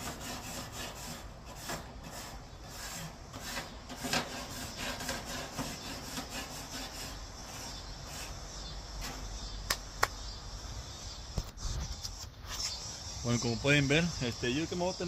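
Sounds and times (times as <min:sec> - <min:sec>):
grill scraping: 0:00.0 - 0:09.4.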